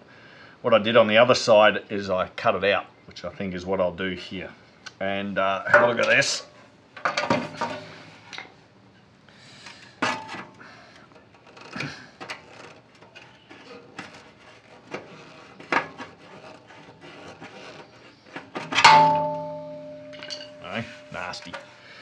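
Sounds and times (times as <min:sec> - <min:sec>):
metal tool scraping steel: 0:11.6 - 0:21.8
steel panel ringing: 0:18.6 - 0:22.0
loud metallic clang: 0:18.7 - 0:21.4.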